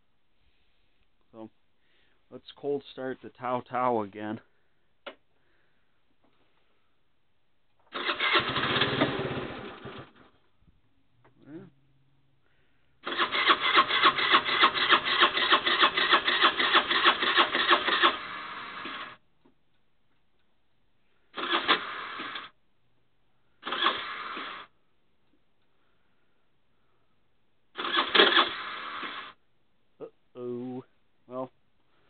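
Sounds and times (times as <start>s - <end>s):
moped starter cranking: 7.9s - 10.2s, 13.0s - 19.2s, 21.4s - 22.6s, 23.6s - 24.7s, 27.8s - 29.4s.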